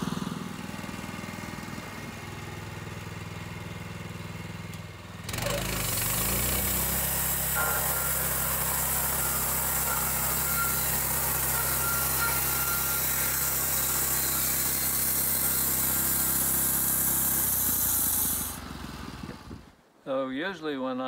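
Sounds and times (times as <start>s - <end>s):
engine drone: 0.0s - 19.8s
saw blade hissing through wood: 5.6s - 18.8s.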